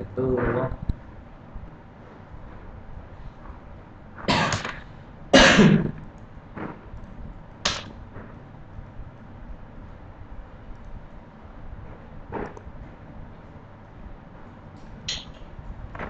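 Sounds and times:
man coughing: 5.4 - 6.0.

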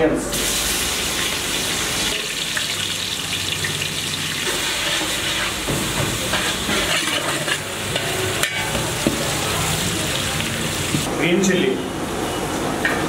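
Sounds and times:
onions sizzling in hot oil: 0.3 - 11.1
metal ladle scraping pot: 4.4 - 9.0.

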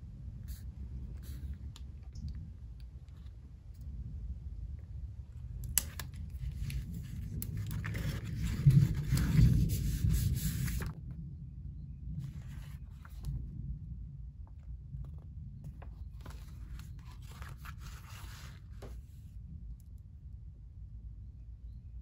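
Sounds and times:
low steady rumble: 0.0 - 22.0
paper rustling: 5.8 - 11.0, 12.2 - 13.4, 15.0 - 19.2.

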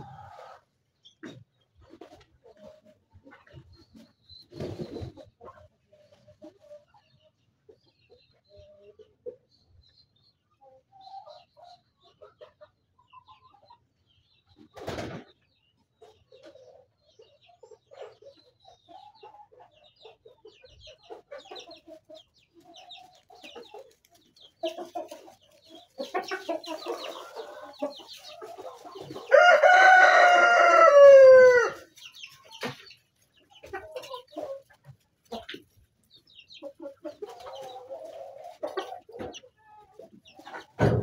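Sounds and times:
chickens clucking: 0.0 - 41.0
rooster crowing: 29.3 - 31.8.

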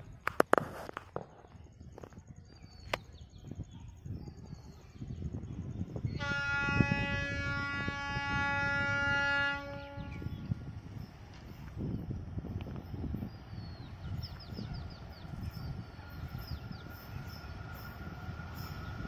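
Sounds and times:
locomotive horn blast: 6.1 - 10.4.

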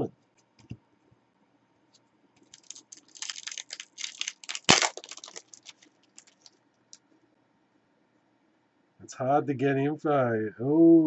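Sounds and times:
foil wrapper tearing: 2.4 - 6.5
foil wrapper crinkling: 2.4 - 6.6.

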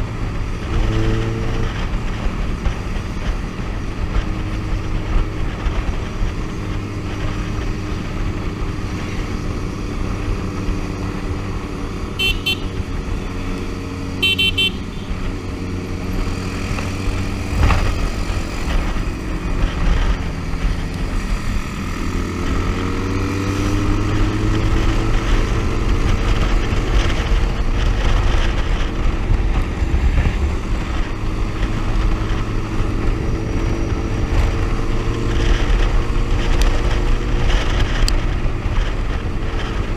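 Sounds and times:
motorcycle engine cruising: 0.0 - 39.9
wind and road rush: 0.0 - 39.9.

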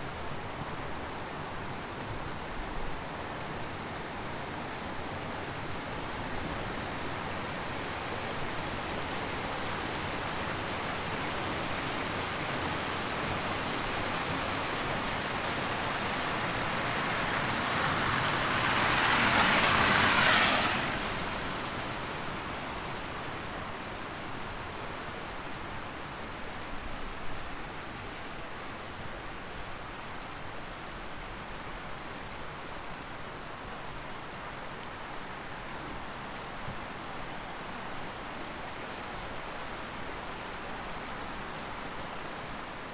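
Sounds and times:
tyres hissing on wet street: 0.1 - 42.9.

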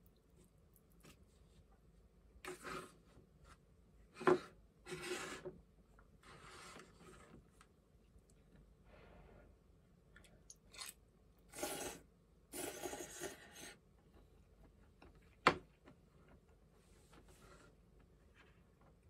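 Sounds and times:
slurping broth: 10.8 - 13.7.

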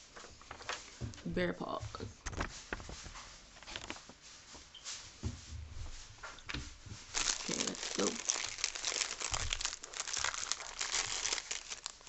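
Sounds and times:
paper and packages rustling: 0.0 - 1.3, 1.9 - 4.7, 6.9 - 12.0
plastic snack wrapper crinkling: 7.1 - 12.0.

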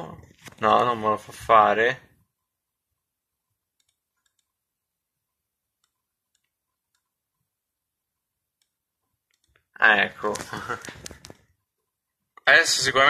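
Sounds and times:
faint computer mouse clicks: 3.8 - 4.5.

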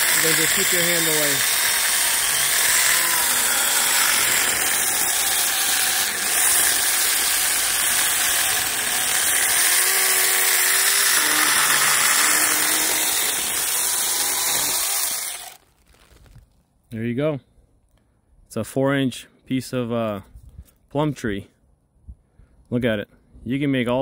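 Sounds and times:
electric chainsaw cutting wood: 0.0 - 15.7.

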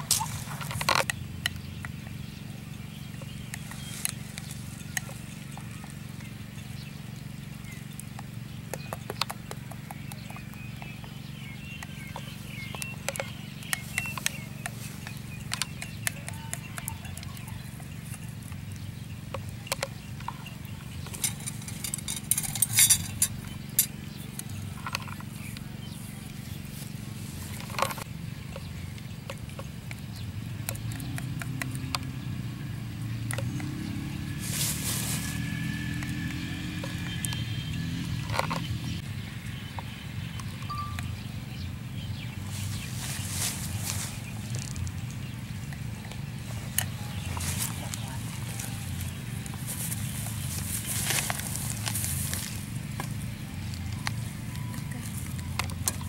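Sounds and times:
steady low hum: 0.0 - 56.0
hands clicking and tapping: 8.0 - 21.4, 30.7 - 32.2.

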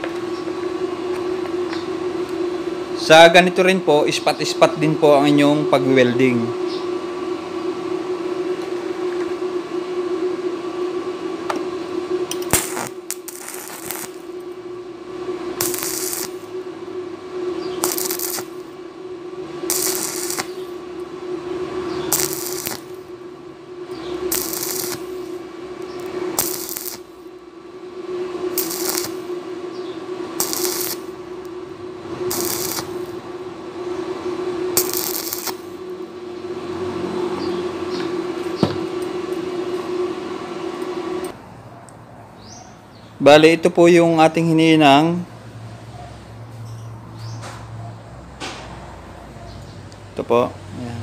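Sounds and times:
steady hum: 0.0 - 51.0
welding arc crackling: 12.3 - 18.8, 19.4 - 27.5, 28.5 - 29.5, 30.3 - 33.4, 34.7 - 36.1.

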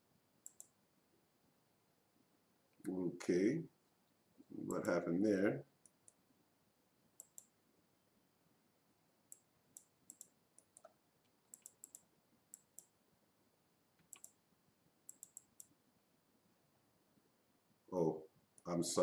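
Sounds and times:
computer mouse clicks: 0.4 - 0.8, 7.2 - 7.6, 9.3 - 13.0, 14.0 - 14.4, 15.1 - 15.8.

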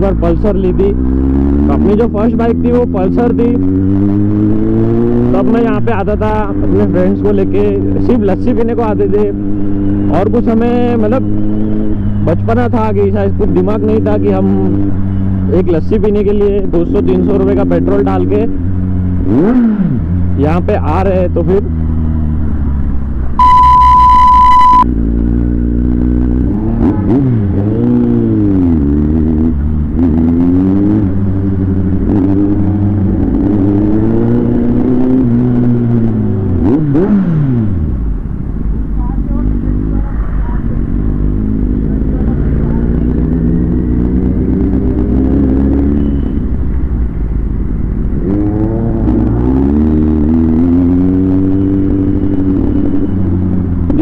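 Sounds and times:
motorcycle engine running: 0.0 - 54.0
loud steady beep: 23.4 - 24.9, 45.8 - 46.5.

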